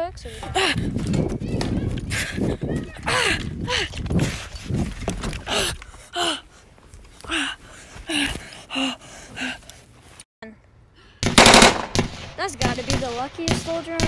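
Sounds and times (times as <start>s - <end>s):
person gasping and panting: 0.2s - 1.0s, 2.0s - 4.7s, 5.3s - 9.8s
rapid crackling burst: 11.2s - 14.0s.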